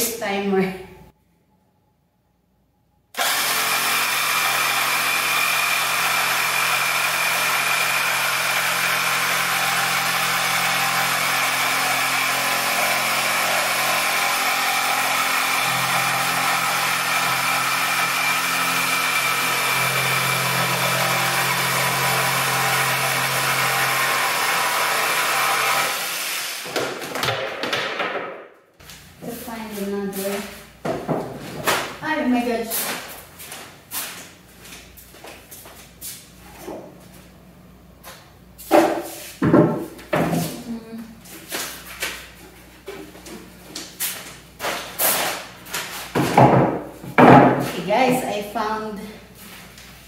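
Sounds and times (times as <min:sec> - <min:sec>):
jigsaw cutting wood: 0:03.2 - 0:27.4.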